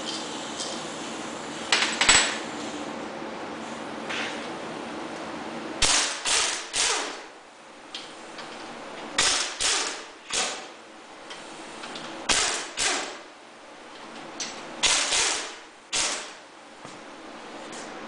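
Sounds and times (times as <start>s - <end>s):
pneumatic impact wrench hammering: 5.8s - 7.3s, 9.1s - 10.8s, 11.4s - 13.3s, 14.4s - 16.4s.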